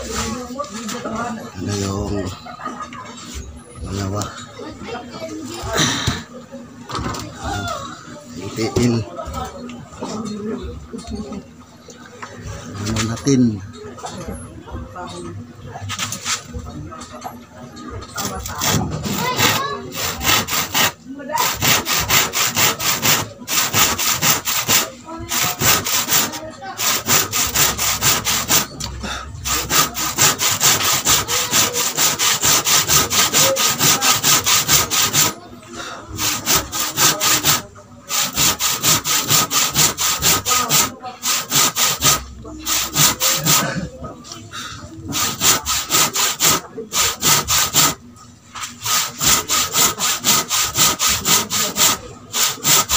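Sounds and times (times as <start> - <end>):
handsaw cutting wood: 18.2 - 35.4, 36.1 - 43.8, 45.1 - 48.0, 48.6 - 52.9.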